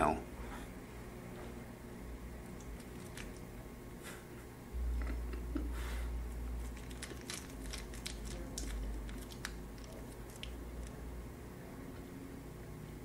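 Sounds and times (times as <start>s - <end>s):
low steady hum: 0.0s - 13.0s
snack being bitten: 2.6s - 3.5s
food wrapper crinkling: 6.6s - 11.0s.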